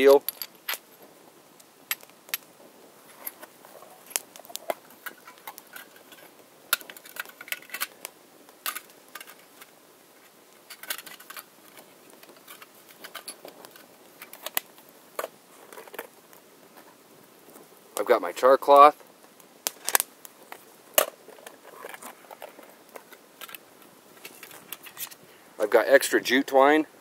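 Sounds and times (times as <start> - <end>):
twig fire crackling: 0.0 - 27.0
clicks and clinks of metal items: 0.2 - 0.9, 10.7 - 14.6.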